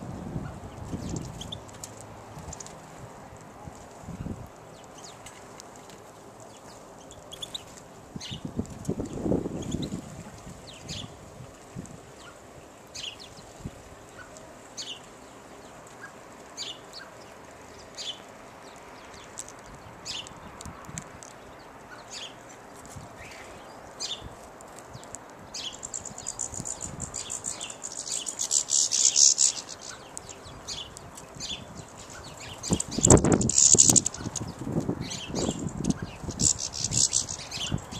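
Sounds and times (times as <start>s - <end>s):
songbirds chirping: 0.0s - 37.9s
rapid high twittering: 25.5s - 37.9s.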